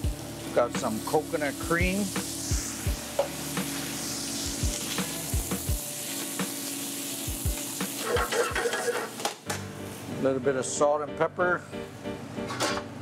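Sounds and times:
noodles sizzling in a pan: 0:00.0 - 0:10.2.

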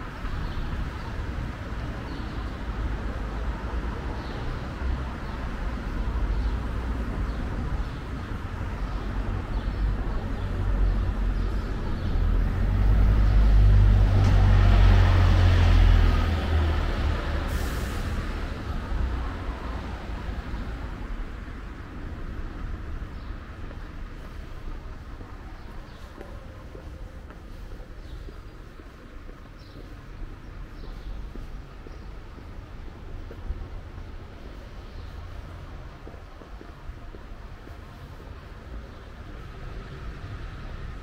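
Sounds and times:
heavy vehicle rumbling past: 0:08.4 - 0:23.6.

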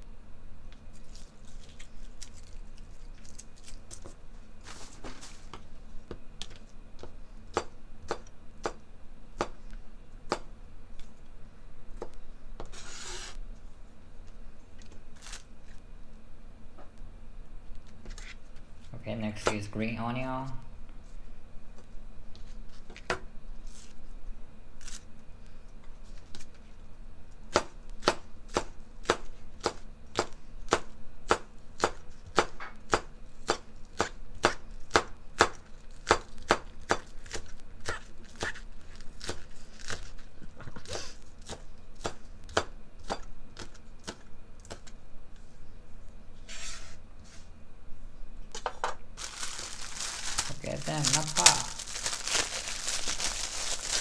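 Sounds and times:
knife scraping board: 0:46.4 - 0:47.5.

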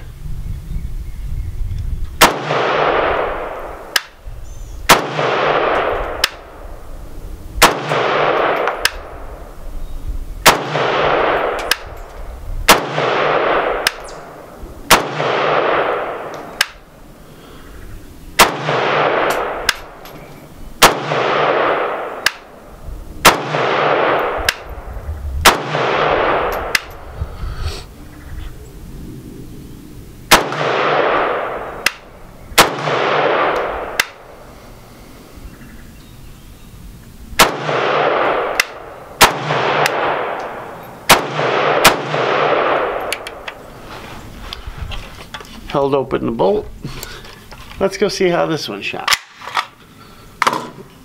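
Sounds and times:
rifle shots: 0:02.2 - 0:04.2, 0:04.9 - 0:06.6, 0:07.6 - 0:09.3, 0:10.4 - 0:12.0, 0:12.7 - 0:16.9, 0:18.4 - 0:20.0, 0:20.8 - 0:22.6, 0:23.2 - 0:24.8, 0:25.4 - 0:27.1, 0:30.3 - 0:34.4, 0:37.4 - 0:43.4
sharp quieter crack: 0:20.8 - 0:35.4.

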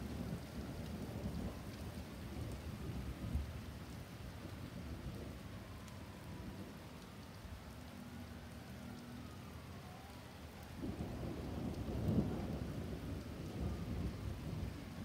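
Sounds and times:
rain on wet pavement: 0:00.0 - 0:15.0
thunder rumbling: 0:10.6 - 0:15.0.

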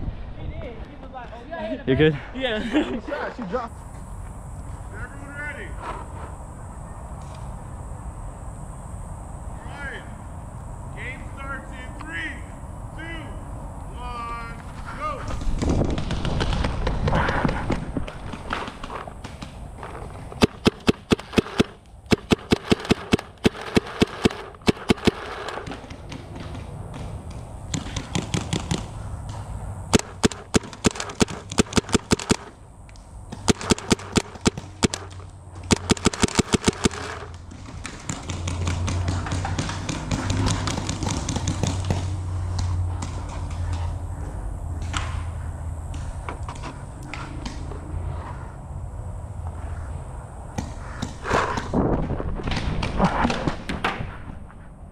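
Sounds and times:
paintball markers popping: 0:18.1 - 0:26.3, 0:30.0 - 0:42.2.

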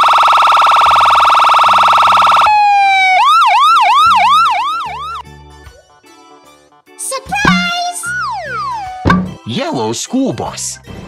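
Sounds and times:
cartoon ambulance siren: 0:00.0 - 0:05.2, 0:07.5 - 0:09.0.

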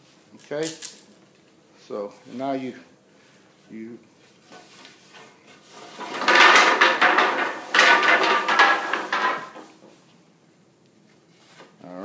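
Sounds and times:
wooden bed slats clattering: 0:05.9 - 0:09.7.

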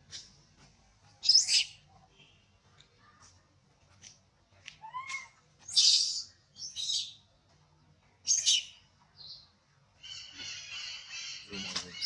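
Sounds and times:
baby monkey shrill screeches: 0:04.8 - 0:07.1.

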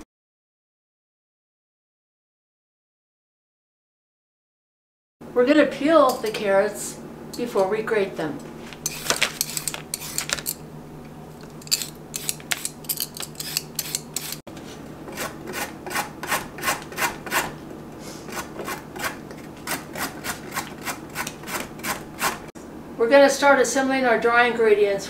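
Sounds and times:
carrot grated on metal grater: 0:08.8 - 0:10.6, 0:11.6 - 0:14.4, 0:15.1 - 0:17.6, 0:18.2 - 0:22.5
peeler scraping carrot: 0:08.8 - 0:10.6, 0:11.6 - 0:14.4, 0:15.1 - 0:22.5.

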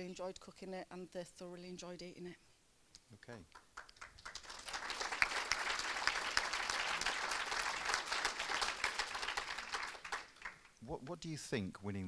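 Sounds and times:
audience applauding: 0:03.6 - 0:10.7.

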